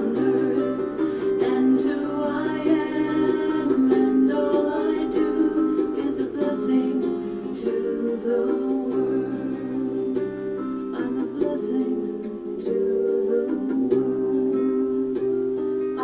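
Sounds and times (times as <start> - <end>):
person singing: 0.0 - 16.0
plucked string accompaniment: 0.0 - 16.0.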